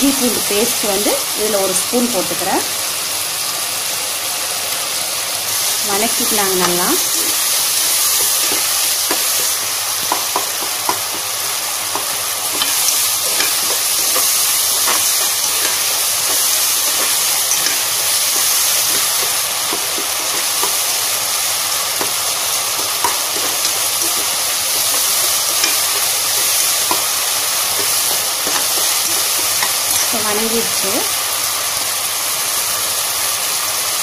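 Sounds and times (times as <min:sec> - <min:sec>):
food sizzling in oil: 0:00.0 - 0:34.0
metal spoon clicking on pot: 0:11.9 - 0:20.8, 0:27.8 - 0:30.1.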